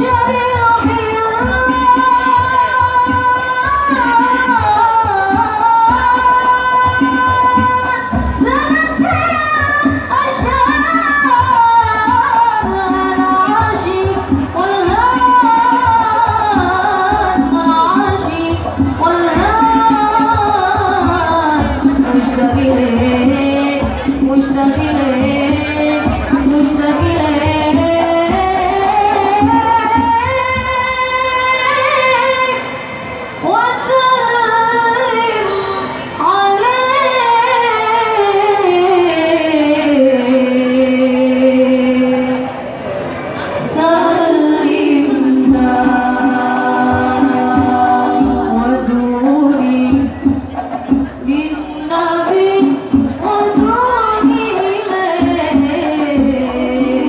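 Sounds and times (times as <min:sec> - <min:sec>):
women singing devotional song: 0:00.0 - 0:42.8, 0:43.4 - 0:57.0.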